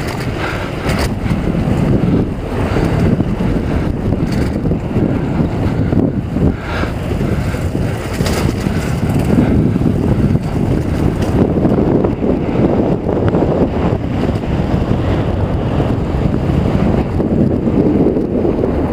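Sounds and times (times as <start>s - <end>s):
bike rolling rumble: 0.0s - 18.9s
wind buffeting microphone: 0.0s - 18.9s.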